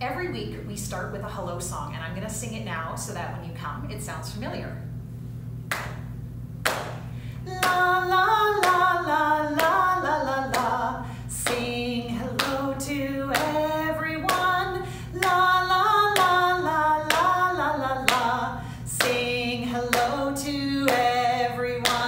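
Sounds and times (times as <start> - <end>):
hand claps: 5.7 - 8.0, 8.6 - 9.9, 10.5 - 10.7, 11.4 - 11.7, 12.4 - 12.7, 13.3 - 14.6, 15.2 - 15.4, 16.1 - 16.4, 17.1 - 17.3, 18.0 - 18.3, 18.9 - 20.3, 20.9 - 21.2, 21.8 - 22.0
woman singing unaccompanied: 7.4 - 22.0.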